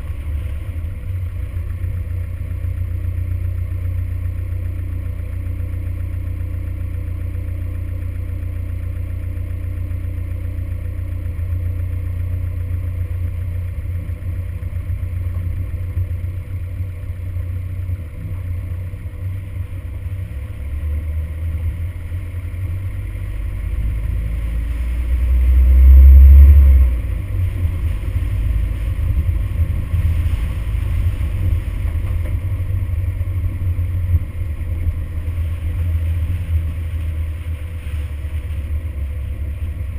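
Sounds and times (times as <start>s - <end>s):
pickup truck driving on gravel: 0.0s - 39.9s.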